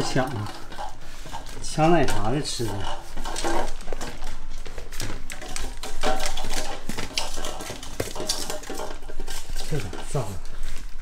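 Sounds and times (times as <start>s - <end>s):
puppy eating kibble from metal bowl: 0.0s - 11.0s.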